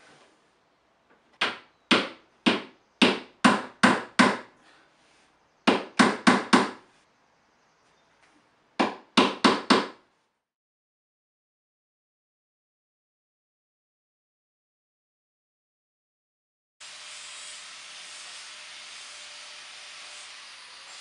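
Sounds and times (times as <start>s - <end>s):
hammer striking wood: 1.4s - 4.5s, 5.6s - 6.8s, 8.8s - 10.0s.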